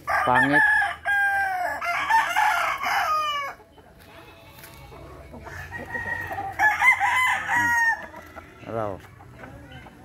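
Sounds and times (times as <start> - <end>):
rooster crowing: 0.0 - 3.6, 5.5 - 8.6.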